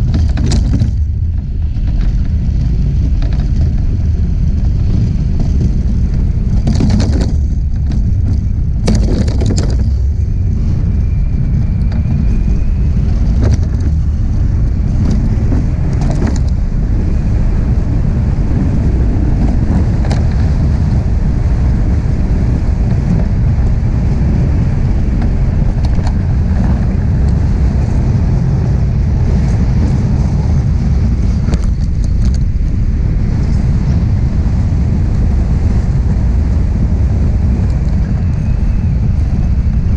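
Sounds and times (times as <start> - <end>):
iceboat runners sliding on ice: 0.0 - 10.8
wind on microphone: 0.0 - 39.9.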